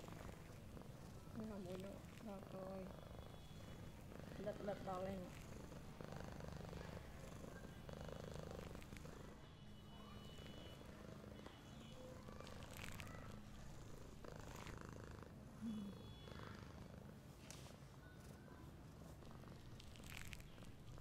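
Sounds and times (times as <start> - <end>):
cat purring: 0.0 - 21.0.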